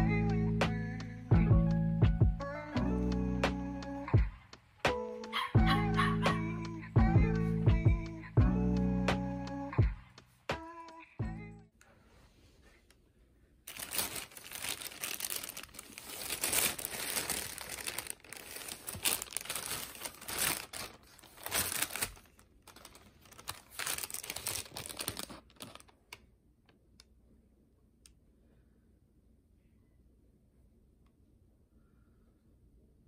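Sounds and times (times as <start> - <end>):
plastic bag crinkling: 13.7 - 26.2.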